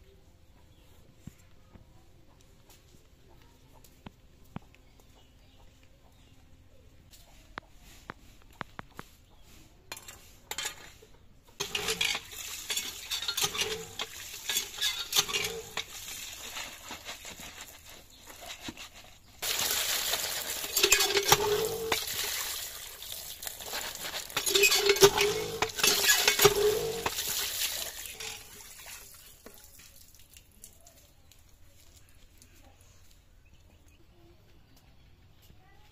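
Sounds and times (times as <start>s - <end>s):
hand pump working: 11.6s - 28.6s
water gushing into plastic basket: 11.9s - 17.9s, 19.4s - 30.6s.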